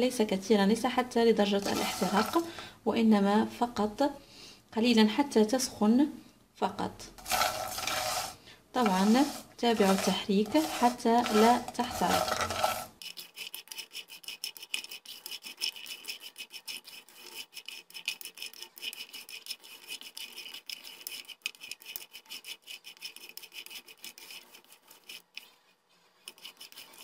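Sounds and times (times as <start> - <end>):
spoon stirring nuts in a dry pan: 1.4 - 2.7, 7.2 - 27.0.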